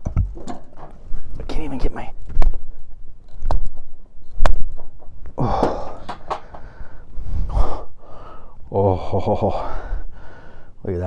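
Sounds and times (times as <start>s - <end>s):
man gasping: 5.4s - 8.6s, 9.5s - 10.8s.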